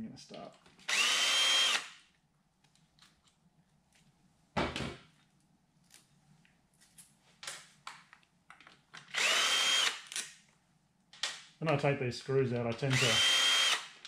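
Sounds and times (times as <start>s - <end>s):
cordless drill whining: 0.8s - 2.0s, 9.1s - 10.0s, 12.9s - 13.9s.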